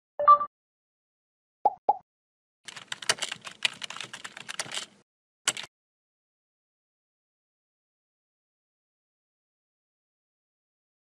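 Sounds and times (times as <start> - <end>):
keyboard key clicks: 2.7 - 5.7.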